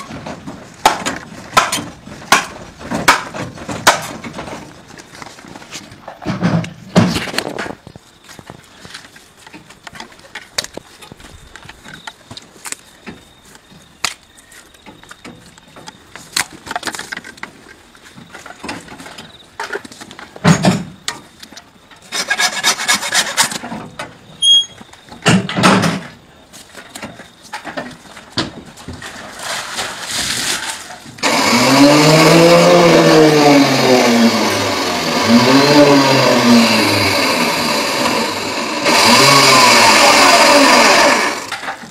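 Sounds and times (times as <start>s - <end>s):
rasping scraping strokes: 22.1s - 23.6s.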